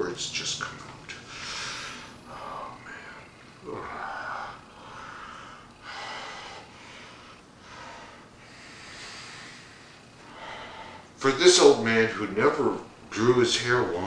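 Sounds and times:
man breathing heavily through mask: 1.3 - 11.2.

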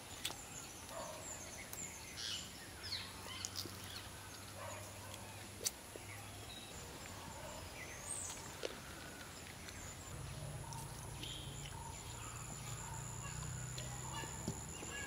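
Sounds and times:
bird chirps: 6.0 - 15.0.

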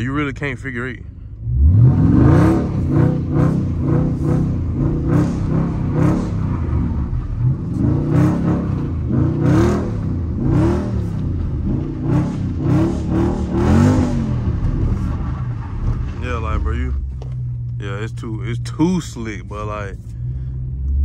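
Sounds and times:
car engine revving: 0.0 - 21.0.

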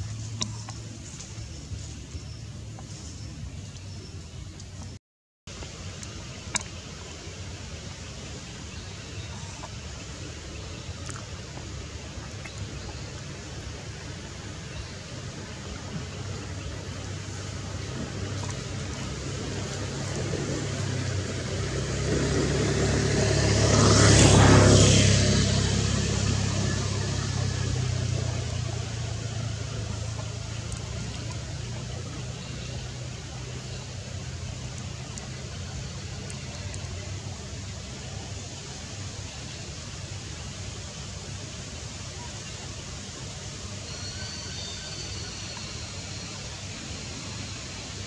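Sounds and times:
forest background hiss: 5.5 - 48.0
road vehicle passing by: 7.2 - 42.0.

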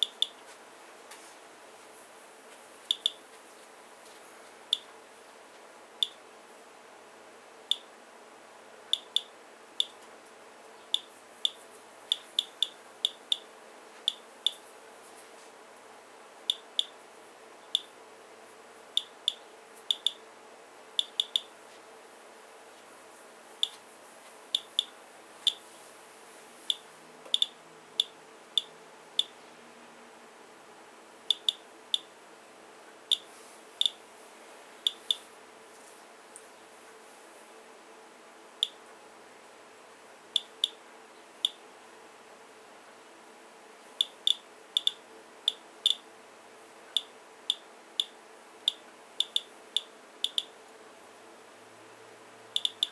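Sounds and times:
geiger counter chirping: 0.0 - 0.4, 2.9 - 3.2, 6.0 - 6.2, 9.0 - 10.0, 10.9 - 13.5, 14.1 - 14.6, 16.5 - 17.0, 17.7 - 17.9, 19.0 - 20.2, 21.0 - 21.5, 24.6 - 24.9, 26.7 - 29.4, 31.3 - 32.1, 33.1 - 34.0, 34.9 - 35.2, 44.0 - 46.0, 47.0 - 50.5, 52.6 - 52.9.

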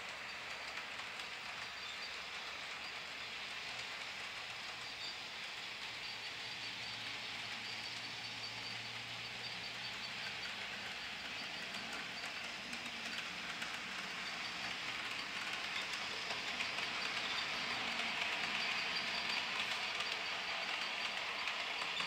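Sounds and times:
model train whirring: 0.0 - 22.0
wheels clicking over track: 0.0 - 22.0.

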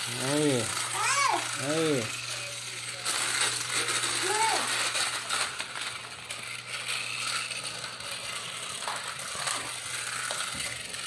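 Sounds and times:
toy car motor whirring: 0.0 - 11.0
wheels rattling over plastic track: 0.0 - 11.0.

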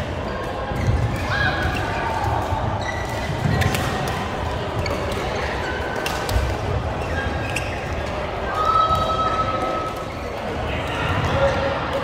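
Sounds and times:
shoe squeaks: 2.8 - 4.0, 7.0 - 8.2.

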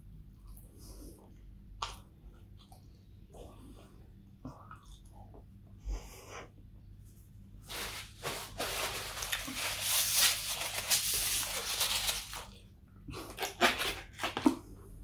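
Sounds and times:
paper napkin rustling: 7.7 - 12.5.

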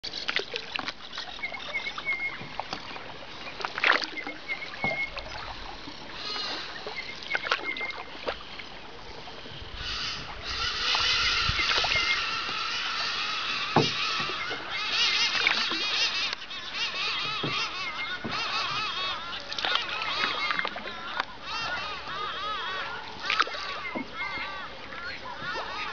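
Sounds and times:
paddle splashing and dripping: 0.0 - 25.9
bird calling: 1.1 - 25.9
steady high buzz: 4.4 - 20.5.

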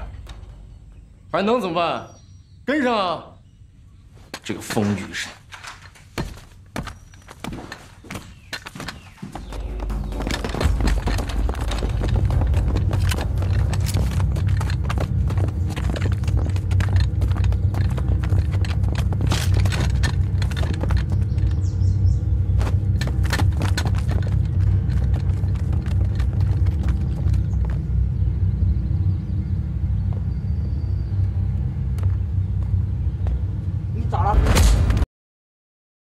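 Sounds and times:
low drone: 9.4 - 35.0.

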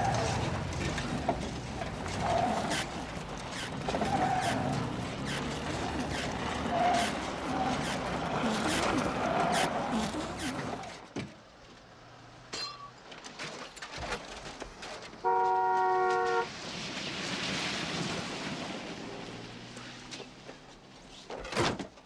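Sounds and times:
two-note car horn: 15.2 - 16.5.

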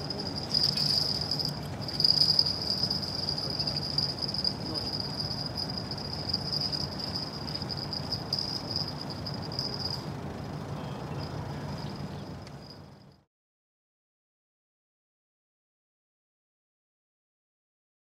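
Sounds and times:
high pulsing chirr: 0.0 - 13.2
low hum of ship and dock machinery: 0.0 - 13.3.

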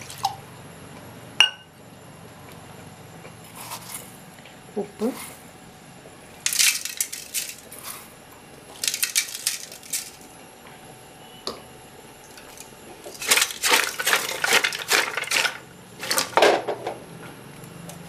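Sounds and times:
vegetables clattering in metal pot: 6.4 - 7.6, 8.8 - 10.2, 12.4 - 16.9.

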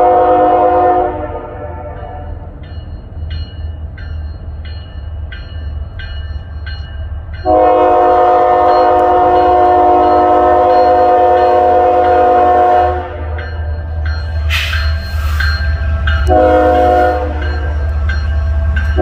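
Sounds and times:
train air horn blast: 0.0 - 2.3, 7.5 - 13.4, 16.3 - 17.5
diesel locomotive engine rumble: 0.0 - 19.0
locomotive bell ringing: 1.8 - 19.0.

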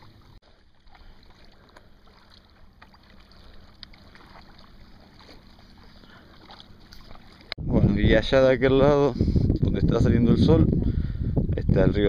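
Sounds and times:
paddle splashes and drips: 0.0 - 7.6.

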